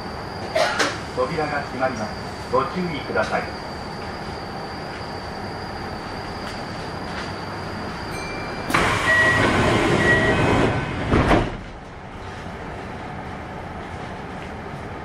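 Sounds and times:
short beeping tones: 8.1 - 10.6
loud rush of sliding doors: 8.6 - 12.4
doors shutting thump: 11.0 - 11.7.

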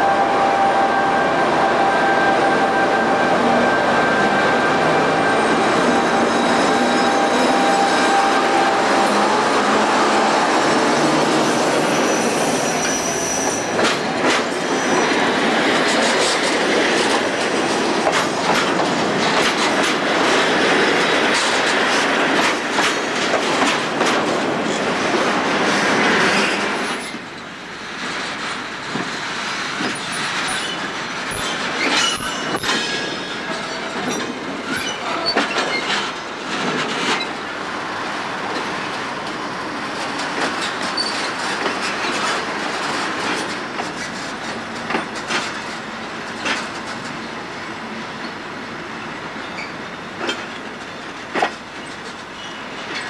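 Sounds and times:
high wheel squeals: 5.0 - 8.7, 11.2 - 13.8, 14.6 - 15.2.

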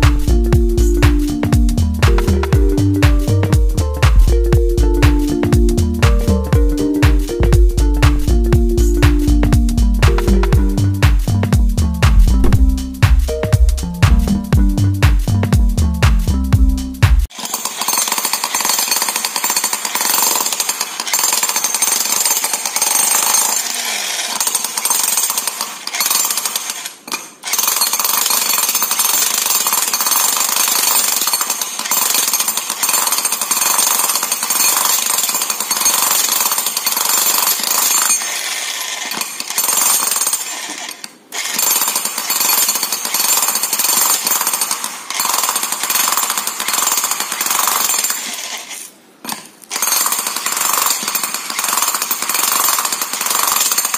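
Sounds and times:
demolition hammer breaking masonry: 17.3 - 38.4, 49.3 - 53.9.

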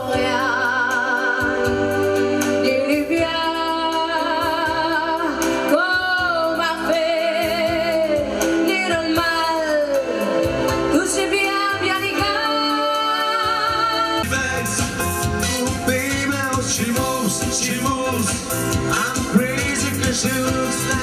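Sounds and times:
woman singing into a microphone: 0.0 - 14.2
band playing: 0.0 - 21.0.

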